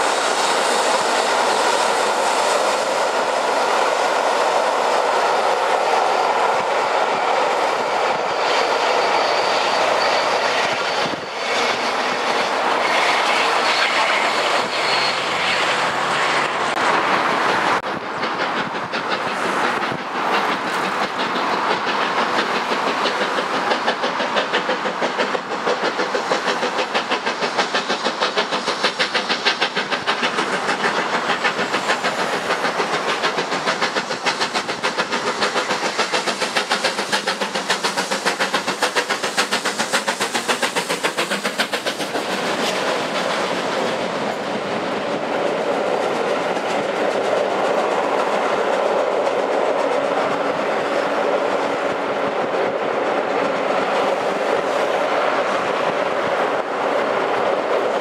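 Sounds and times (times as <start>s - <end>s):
steam locomotive chuffing: 0.0s - 58.0s
wheels rumbling on rails: 0.0s - 58.0s.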